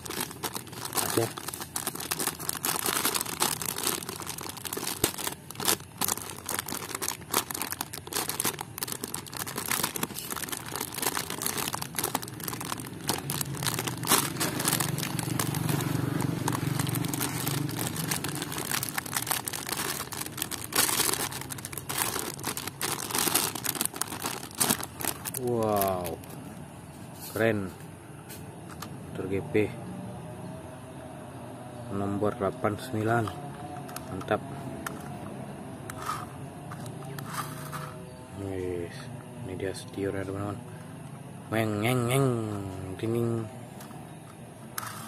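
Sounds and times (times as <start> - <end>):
plastic bag crinkling: 0.0 - 26.4.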